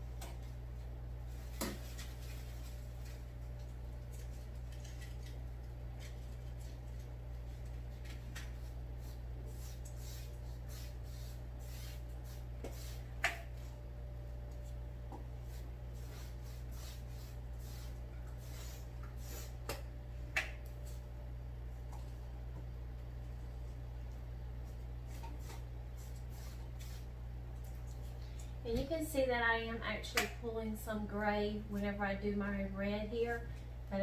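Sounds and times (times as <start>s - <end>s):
steady low hum: 0.0s - 34.0s
paintbrush scratching on canvas: 15.4s - 19.5s.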